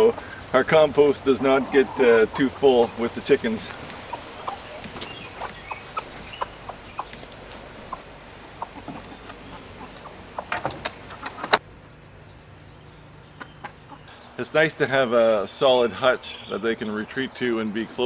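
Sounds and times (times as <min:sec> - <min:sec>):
hens clucking: 0:00.0 - 0:14.3.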